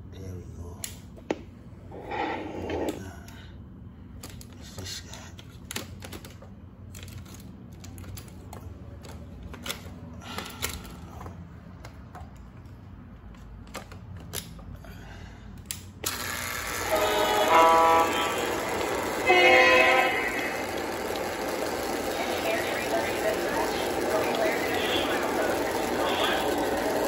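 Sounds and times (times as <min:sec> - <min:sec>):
model train running: 0:16.0 - 0:27.0.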